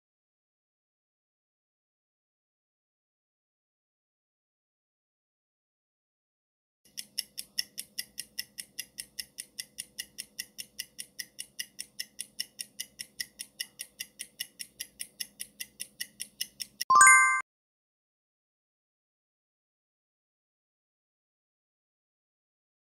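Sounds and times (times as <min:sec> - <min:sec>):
clock ticking quickly: 0:06.9 - 0:16.9
bright chime: 0:16.9 - 0:17.4.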